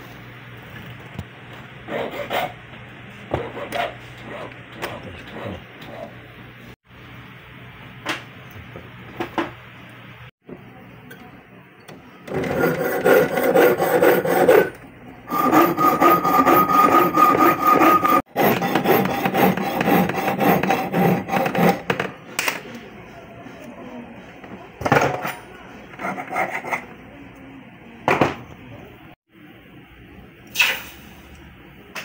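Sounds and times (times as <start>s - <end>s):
piercing saw cutting metal: 12.3s - 22.0s.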